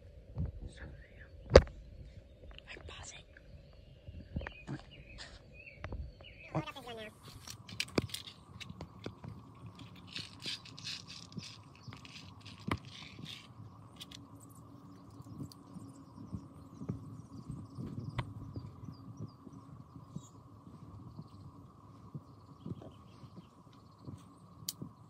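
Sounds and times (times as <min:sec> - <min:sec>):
plastic pellets clicking and rattling: 0:09.8 - 0:15.3.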